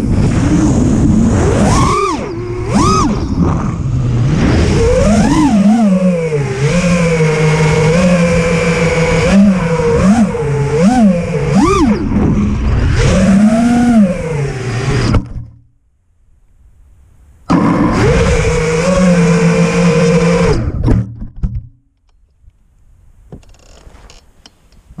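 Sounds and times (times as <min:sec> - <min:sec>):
quadcopter motors whining: 0:00.0 - 0:15.3, 0:17.5 - 0:20.8.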